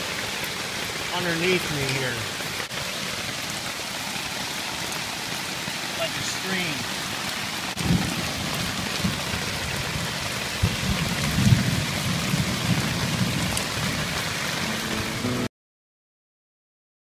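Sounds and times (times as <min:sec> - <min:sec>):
heavy rain on tent: 0:00.0 - 0:15.5.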